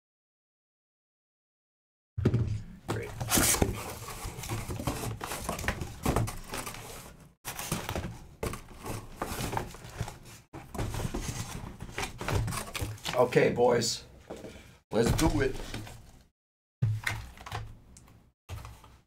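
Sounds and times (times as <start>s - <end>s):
cardboard rustling and scraping: 2.9s - 13.3s.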